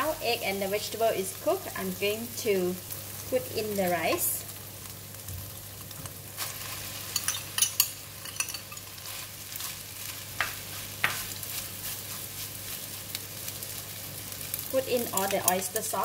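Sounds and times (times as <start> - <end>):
rice sizzling in a pan: 0.0 - 16.0
metal spoon scraping a pan: 6.4 - 9.7.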